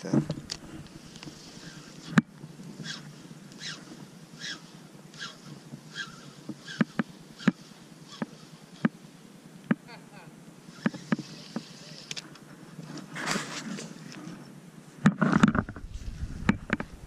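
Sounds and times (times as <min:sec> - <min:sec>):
fishing rod swishes: 0:03.6 - 0:06.8
fishing reel clicks: 0:05.2 - 0:08.9.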